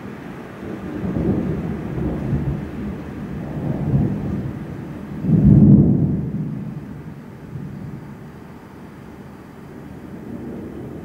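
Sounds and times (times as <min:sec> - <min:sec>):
thunder rumbling: 0:00.6 - 0:08.4.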